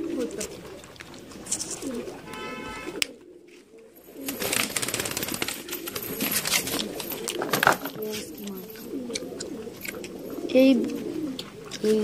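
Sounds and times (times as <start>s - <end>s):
pigeons cooing: 0.0s - 12.0s
pigeon wing flaps: 4.2s - 8.1s.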